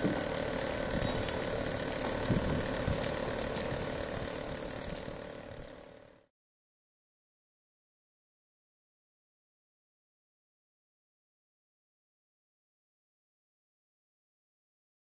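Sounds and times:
small electric motor humming: 0.0 - 6.2.

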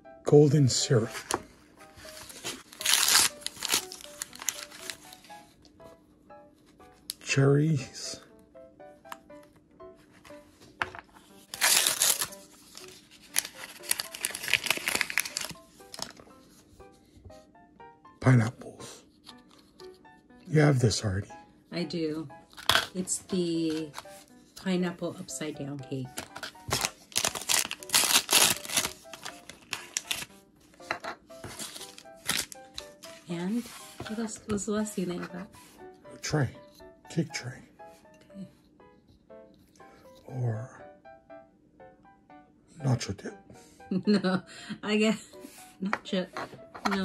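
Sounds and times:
soft background music: 0.0 - 47.0
plastic packaging crinkling: 1.3 - 5.3, 11.4 - 16.3, 26.2 - 30.3, 31.4 - 34.0.

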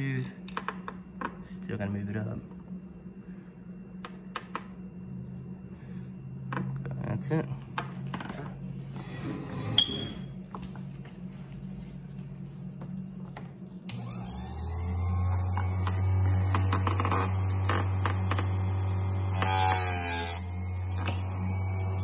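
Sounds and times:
sharpener motor hum and whine: 0.0 - 22.0
grinding disc rasp on chain: 15.4 - 22.0.

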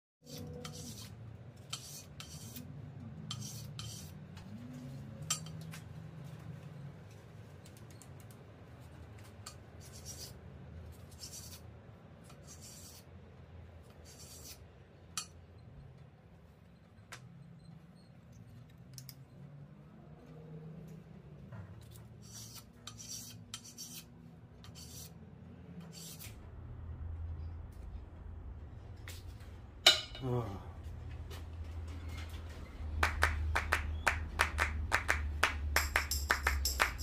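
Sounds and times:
low steady hum: 26.3 - 32.8.

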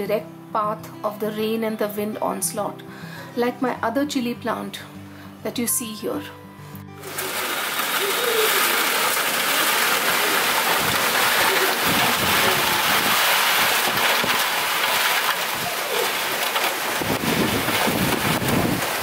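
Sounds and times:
heavy rain pouring: 7.0 - 19.0
wind gusts buffeting microphone: 10.0 - 19.0.

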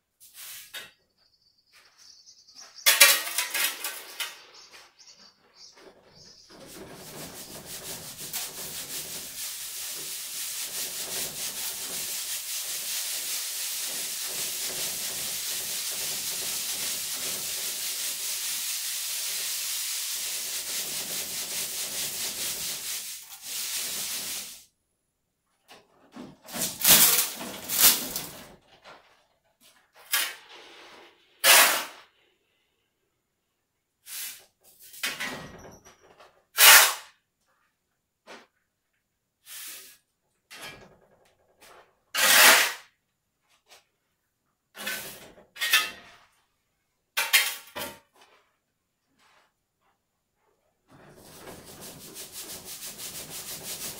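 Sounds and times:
sand hissing through a sieve: 0.2 - 0.7, 6.6 - 24.7, 34.1 - 34.4, 39.4 - 40.0, 51.0 - 53.9.

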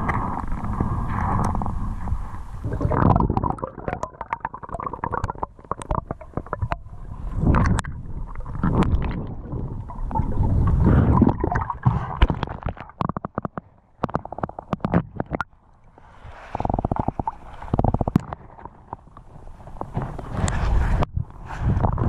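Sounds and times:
sharp underwater clicks and knocks: 0.0 - 1.8, 2.8 - 9.3, 10.9 - 15.6, 16.5 - 21.1
muffled underwater water rumble: 0.0 - 22.0.

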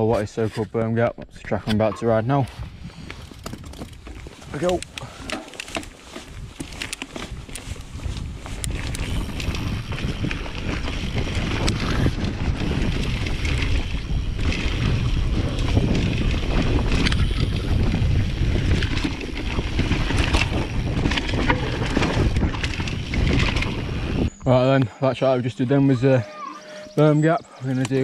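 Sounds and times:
bike rattling and clicking: 2.9 - 24.8, 26.5 - 28.0
tyres rolling on dirt: 3.2 - 24.8
wind rushing over microphone: 6.0 - 24.7.

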